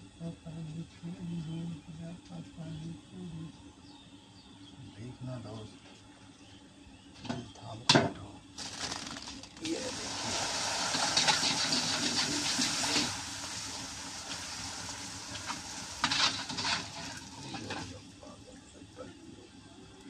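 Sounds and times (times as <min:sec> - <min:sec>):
dough sizzling in hot oil: 0:08.6 - 0:18.0.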